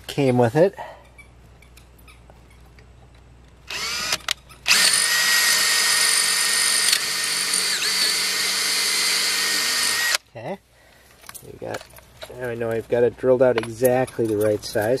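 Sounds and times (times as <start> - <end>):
power drill boring: 3.7 - 10.2.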